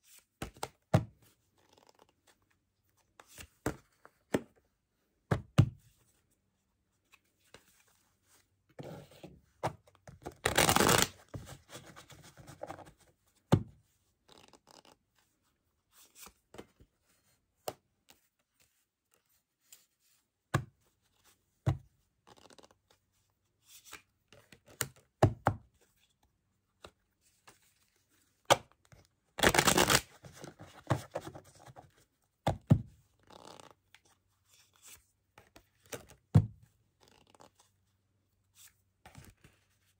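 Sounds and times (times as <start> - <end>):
cards being shuffled: 10.2 - 13.1, 29.4 - 32.0.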